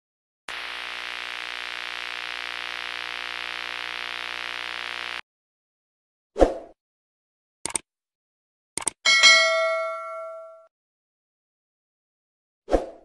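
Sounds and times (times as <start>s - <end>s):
static hiss: 0.5s - 5.2s.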